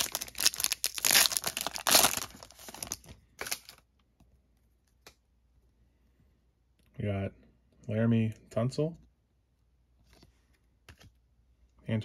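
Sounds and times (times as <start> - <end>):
wrapper tearing and crinkling: 0.0 - 3.8.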